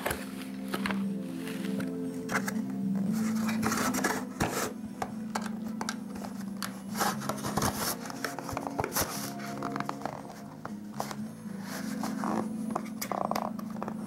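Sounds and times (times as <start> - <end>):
cardboard rubbing and scraping: 3.1 - 4.8, 6.9 - 13.1.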